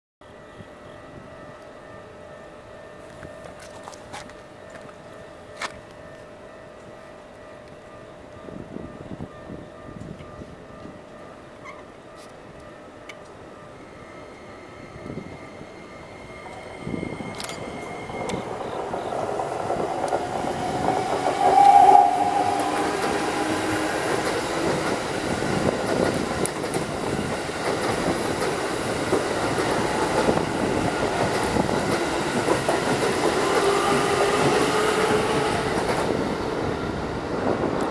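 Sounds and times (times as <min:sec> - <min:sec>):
electric train inverter whine: 0:00.2 - 0:37.9
train wheels clacking on rails: 0:16.0 - 0:36.8.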